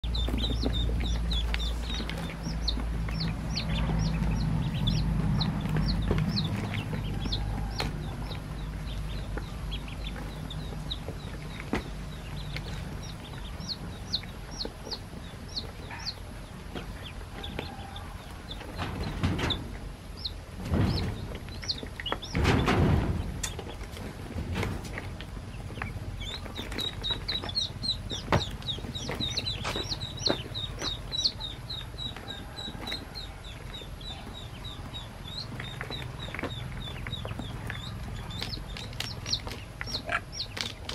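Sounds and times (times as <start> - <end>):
low rumble: 0.0 - 15.6
ducklings peeping: 0.0 - 40.9.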